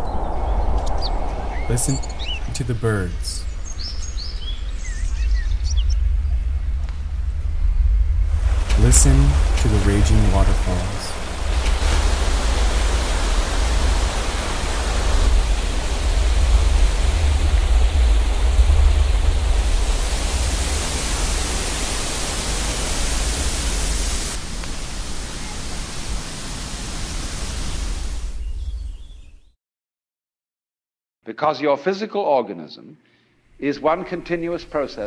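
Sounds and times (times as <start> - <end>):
waterfall roaring: 1.0 - 3.4, 8.3 - 28.2.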